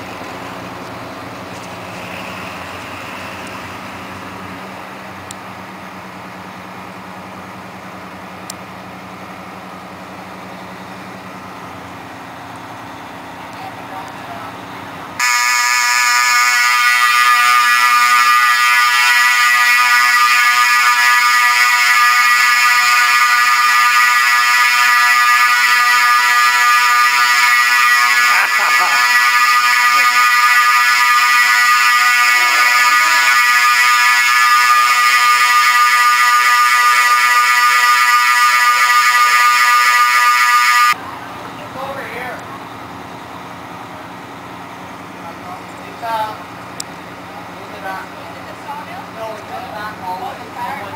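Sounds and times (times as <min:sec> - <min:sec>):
fire alarm buzzing: 0:15.2 - 0:41.0.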